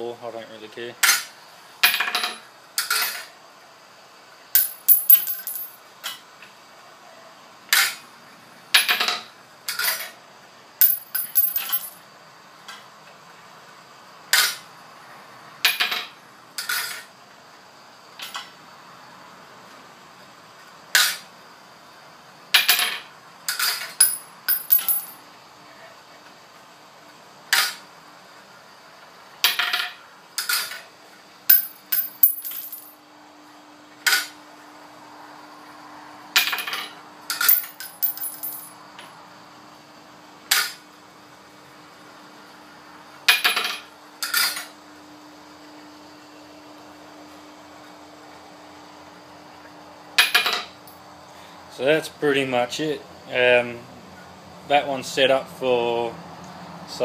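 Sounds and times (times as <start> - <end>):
faint steady whine: 0.0 - 57.0
metal cartridge cases clinking: 4.6 - 5.7, 10.8 - 12.0, 24.0 - 25.2, 31.5 - 32.9, 37.4 - 38.7.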